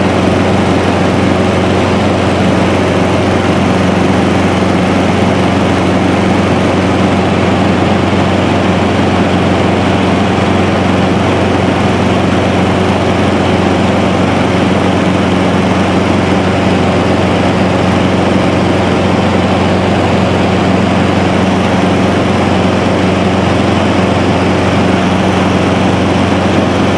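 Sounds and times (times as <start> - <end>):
light aircraft engine droning: 0.0 - 26.9.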